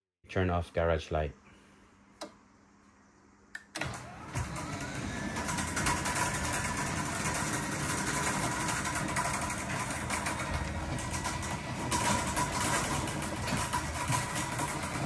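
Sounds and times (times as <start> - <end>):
garage door opener motor running: 3.6 - 15.0.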